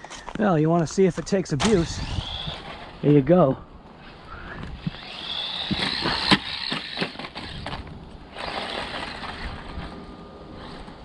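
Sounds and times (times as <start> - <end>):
tyres rattling over ground: 0.0 - 11.0
electric motor whining: 1.7 - 3.0, 4.0 - 11.0.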